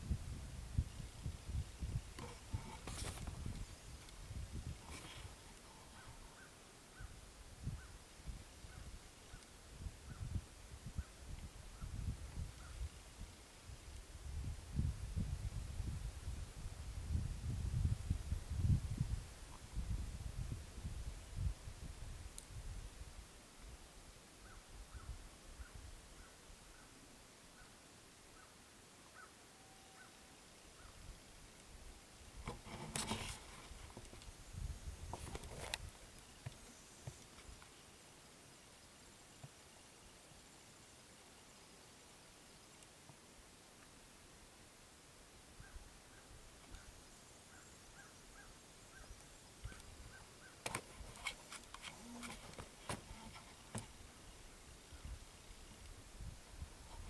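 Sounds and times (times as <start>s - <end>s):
rustling and handling noise: 2.2s - 5.9s, 32.4s - 34.4s, 35.0s - 37.8s, 50.6s - 54.2s
faint short bird calls: 4.9s - 8.0s, 24.4s - 31.1s, 45.6s - 50.7s.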